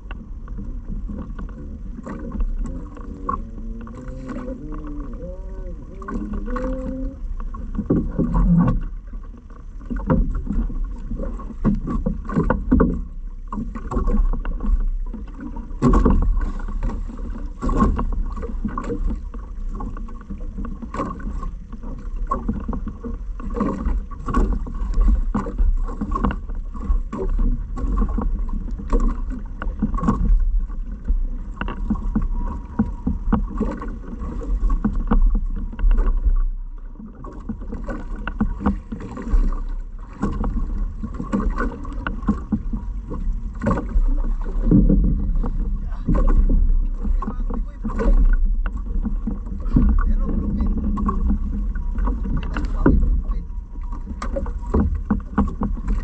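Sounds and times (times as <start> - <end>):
low rumble: 0.0 - 9.4, 21.5 - 56.0
water knocking against boat hull: 0.0 - 56.0.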